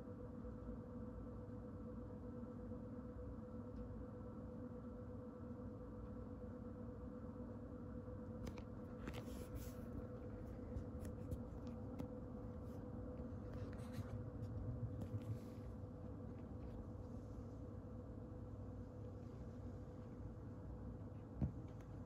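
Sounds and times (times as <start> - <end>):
steady low hum: 0.0 - 22.0
faint soft rustles: 8.6 - 17.6.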